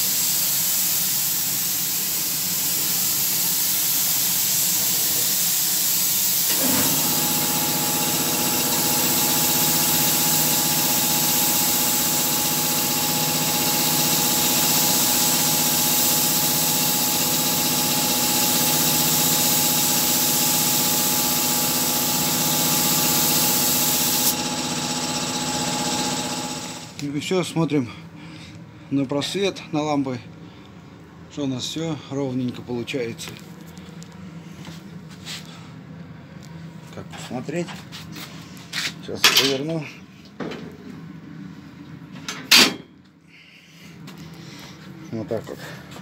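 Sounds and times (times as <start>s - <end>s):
spray gun hissing: 0.0s - 26.9s
motor humming: 6.5s - 27.0s.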